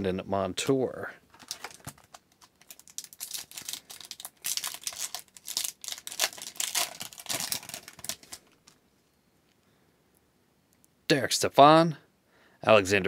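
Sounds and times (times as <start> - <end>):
foil wrapper crackling: 1.4 - 8.8.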